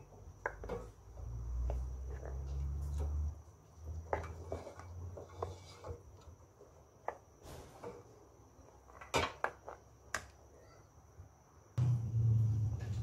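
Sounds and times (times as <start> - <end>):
spatula stirring and scraping pot: 4.0 - 6.4.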